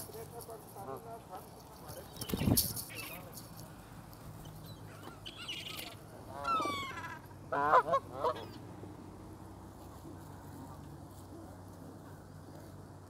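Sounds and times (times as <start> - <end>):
geese honking: 0.0 - 1.7, 4.9 - 8.7.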